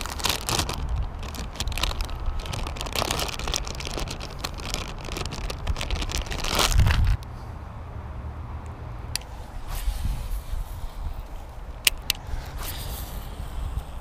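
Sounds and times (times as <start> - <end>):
plastic packet crinkling: 0.0 - 7.2.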